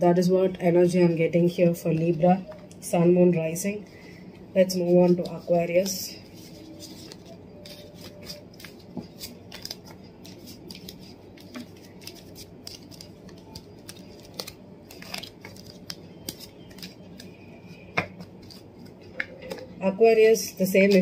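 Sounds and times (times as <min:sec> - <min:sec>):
cards clicking and sliding: 0:06.9 - 0:17.3.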